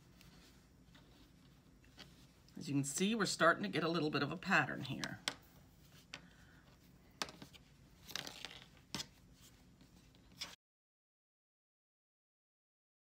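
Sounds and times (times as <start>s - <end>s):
fleece strips rustling: 0.0s - 2.6s, 4.8s - 10.6s.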